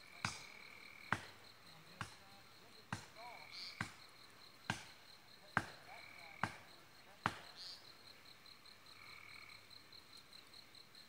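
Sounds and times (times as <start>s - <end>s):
hatchet chopping wood: 0.2s - 0.5s, 1.1s - 1.4s, 2.0s - 2.2s, 2.9s - 3.2s, 3.8s - 4.0s, 4.7s - 4.9s, 5.6s - 5.8s, 6.4s - 6.6s, 7.2s - 7.5s.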